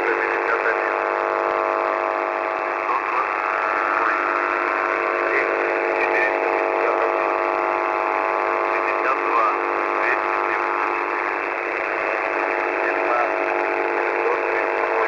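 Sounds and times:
constant radio tones: 0.0s - 15.0s
radio static: 0.0s - 15.0s.

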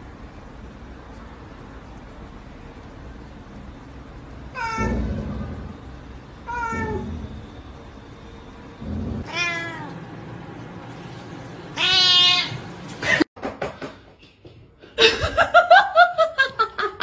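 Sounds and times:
cat meowing: 4.5s - 5.3s, 6.5s - 7.3s, 9.2s - 10.0s, 11.8s - 12.6s
person laughing: 15.0s - 17.0s.

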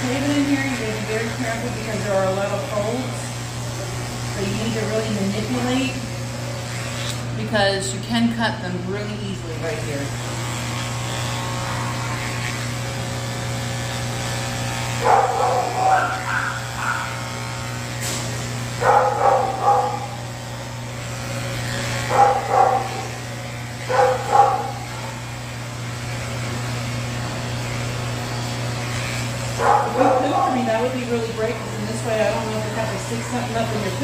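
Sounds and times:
electric clipper humming: 0.0s - 34.0s.

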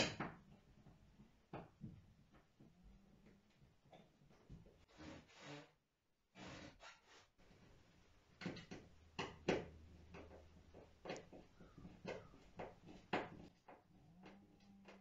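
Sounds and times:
tools clicking and knocking on wood: 8.4s - 15.0s.

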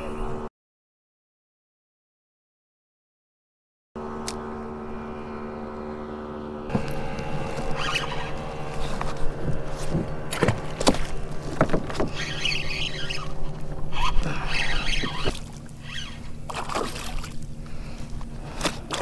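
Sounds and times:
steady hum: 4.0s - 19.0s
fishing reel drag squealing: 7.5s - 9.0s, 12.0s - 17.2s.

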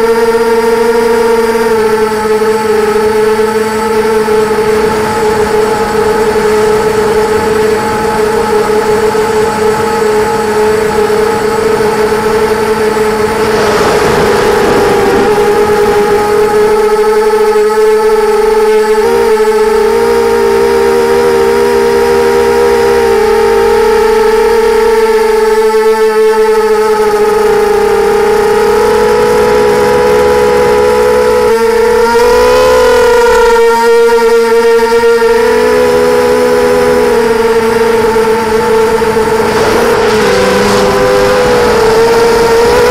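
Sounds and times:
quadcopter motors whining: 0.0s - 42.9s
rush of air: 13.1s - 16.9s, 39.0s - 42.9s.

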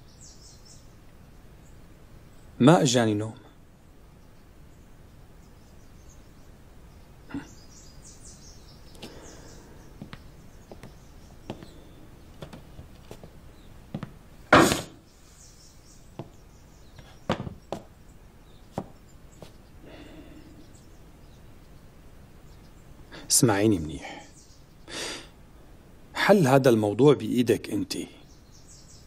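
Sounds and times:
faint bird chirps: 0.0s - 26.5s, 27.2s - 29.0s
footsteps on wooden floorboards: 10.0s - 14.2s, 16.2s - 16.4s, 17.0s - 17.9s, 18.7s - 19.6s.

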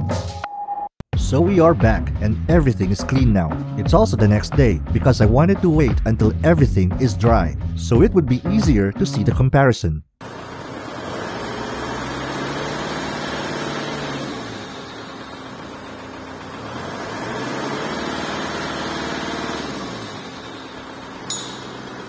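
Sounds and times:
diesel engine revving: 10.2s - 22.0s.

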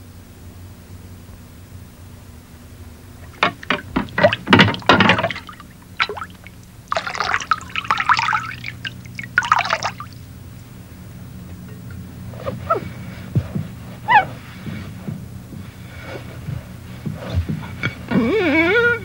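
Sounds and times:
liquid pouring and splashing: 3.2s - 10.2s.

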